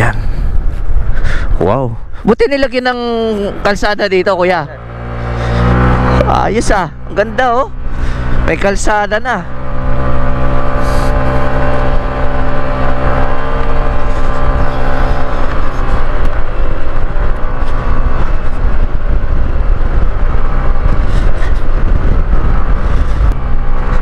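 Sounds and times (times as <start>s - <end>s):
wind rumble on microphone: 0.0s - 2.1s, 4.9s - 24.0s
motorcycle engine under load: 9.4s - 24.0s.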